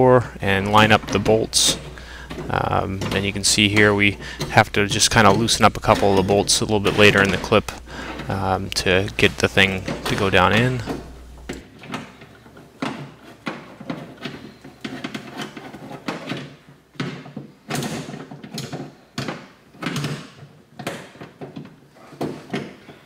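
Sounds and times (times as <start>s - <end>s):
metal clunks and rattles in door: 0.0s - 14.5s
metal scraping sheet metal: 0.2s - 11.4s.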